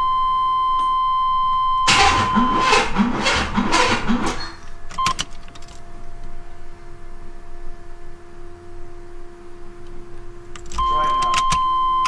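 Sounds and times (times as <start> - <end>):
faint steady hum: 0.0 - 2.7, 4.4 - 12.0
starter cranking engine: 1.9 - 5.6
clicks: 9.8 - 11.7
short chime beep: 10.8 - 12.0.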